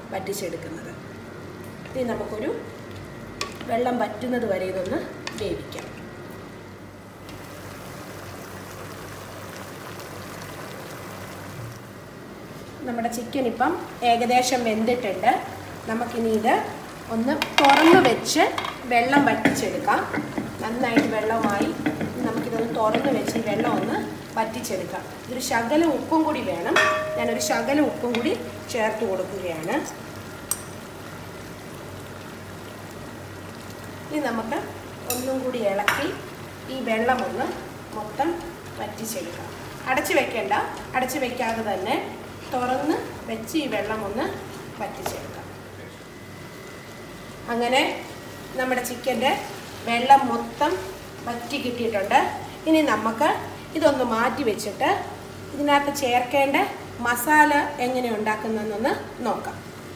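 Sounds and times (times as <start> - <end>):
chicken simmering in a pot: 7.3 - 12.1
pot bubbling: 13.9 - 56.8
person speaking: 26.7 - 29.4.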